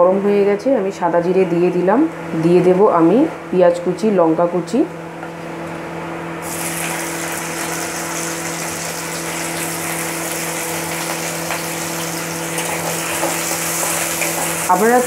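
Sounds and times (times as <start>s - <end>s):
onion sizzling in hot oil: 6.4s - 15.0s.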